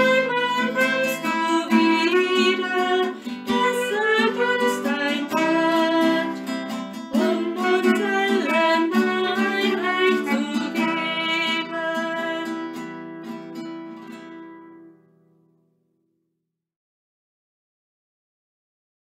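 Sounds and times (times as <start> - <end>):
person singing a hymn: 0.0 - 12.8
acoustic guitar: 0.0 - 16.2.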